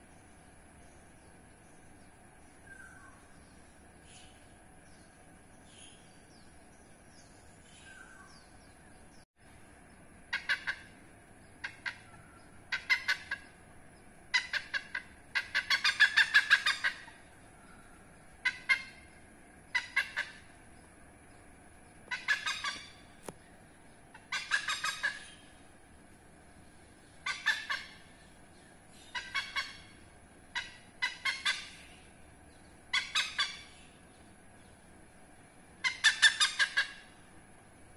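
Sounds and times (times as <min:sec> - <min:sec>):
hornbill cackling calls: 0:10.2 - 0:13.6, 0:14.2 - 0:20.7, 0:22.0 - 0:23.4, 0:24.1 - 0:25.7, 0:27.1 - 0:34.0, 0:35.8 - 0:37.4.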